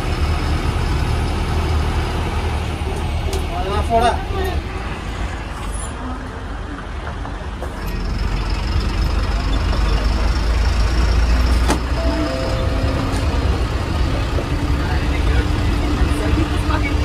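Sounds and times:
bus diesel engine rumble: 0:00.0 - 0:17.0.

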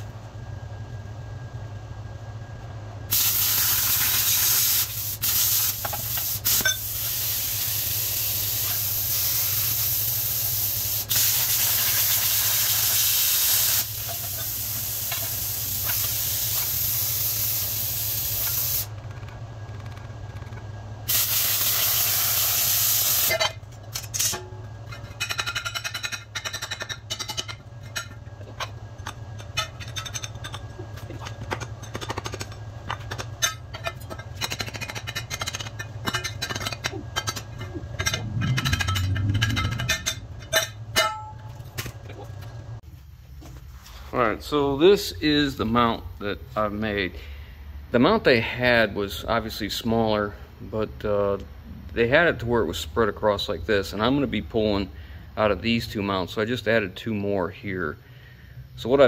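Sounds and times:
plasma cutter hissing: 0:03.1 - 0:18.9, 0:21.1 - 0:23.4.

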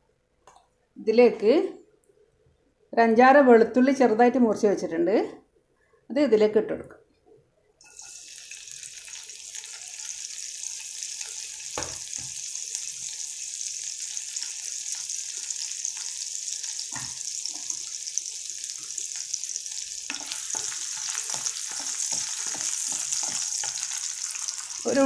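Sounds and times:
garlic sizzling in hot oil: 0:07.8 - 0:25.0.

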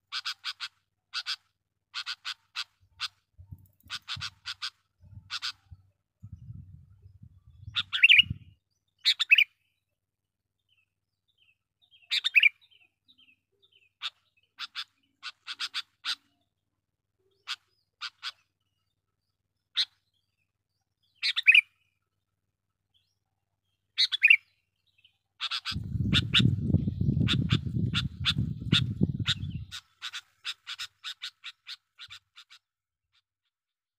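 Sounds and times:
bulbul calling: 0:02.0 - 0:05.8, 0:07.6 - 0:09.6, 0:11.9 - 0:12.8, 0:13.7 - 0:16.4, 0:21.2 - 0:21.8, 0:24.0 - 0:24.6, 0:25.4 - 0:32.7.

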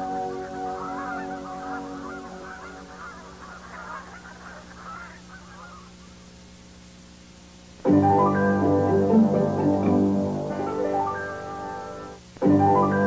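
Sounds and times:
flock of geese honking: 0:00.0 - 0:06.1
faint low hum: 0:00.0 - 0:13.0.

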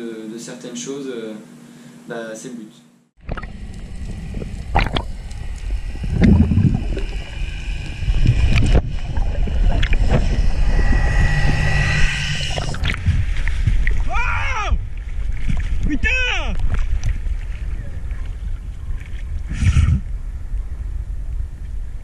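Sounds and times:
propeller whine: 0:03.2 - 0:14.0
underwater boat rumble: 0:03.2 - 0:15.9.

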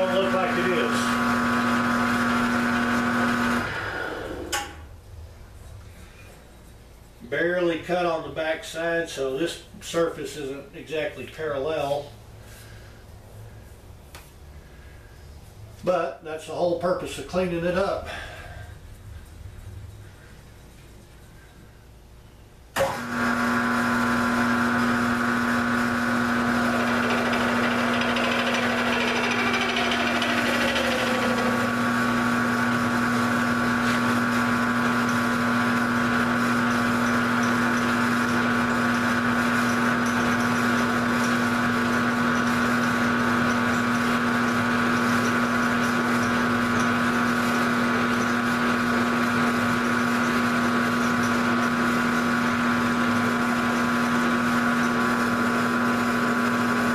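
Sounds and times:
milling machine motor whine: 0:00.0 - 0:04.8, 0:22.8 - 0:56.9
cutter facing metal: 0:26.4 - 0:32.1.

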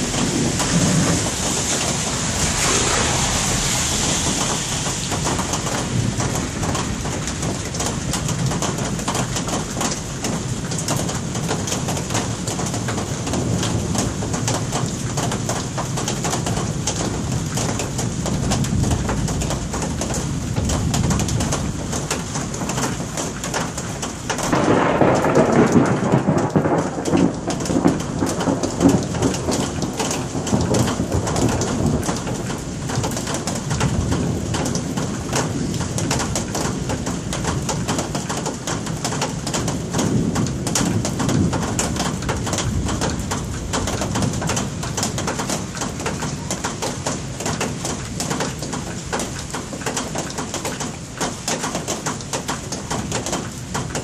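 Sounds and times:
thunder rumbling: 0:00.0 - 0:14.6, 0:24.4 - 0:46.6
steady rain falling: 0:00.0 - 0:54.0.

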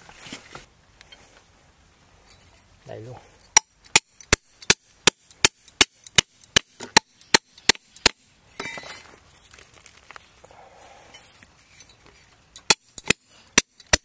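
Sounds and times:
soil scraping and rustling: 0:00.0 - 0:03.5, 0:08.4 - 0:13.5
iron bar striking soil: 0:03.4 - 0:09.2, 0:11.1 - 0:14.0.

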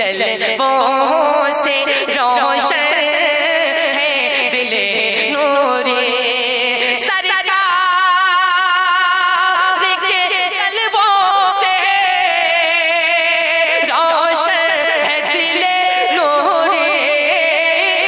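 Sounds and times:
man singing with vibrato: 0:00.0 - 0:18.0.

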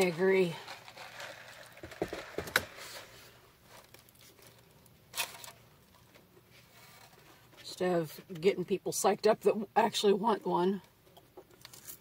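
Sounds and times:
paper wrapper crinkling: 0:00.0 - 0:06.1.

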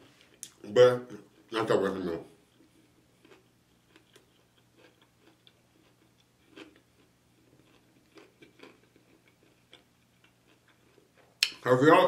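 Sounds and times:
man chewing with lips closed: 0:02.4 - 0:11.6.

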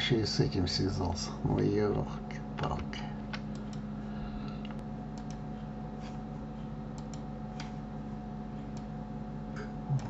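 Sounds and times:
low electrical hum: 0:00.0 - 0:10.0
computer mouse and keyboard clicks: 0:04.6 - 0:05.4.

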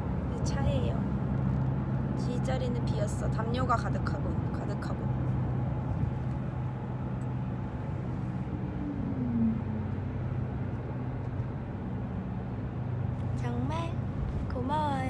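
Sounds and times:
van engine and road rumble: 0:00.0 - 0:15.0
low falling tone: 0:07.2 - 0:12.0.

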